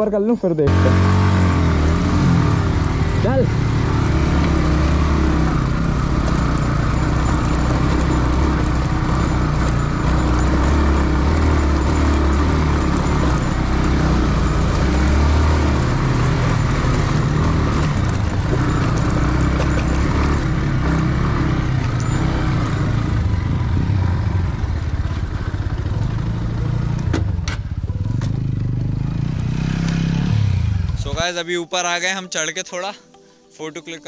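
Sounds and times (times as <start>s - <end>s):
motorcycle engine revving: 0.6s - 31.3s.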